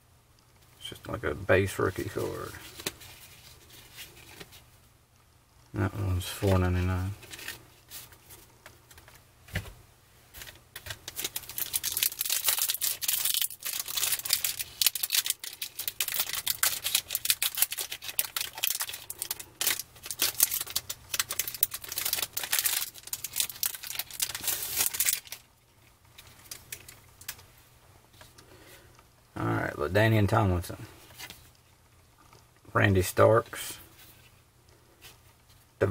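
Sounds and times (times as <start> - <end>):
foil wrapper crinkling: 10.4 - 25.5, 26.1 - 27.4.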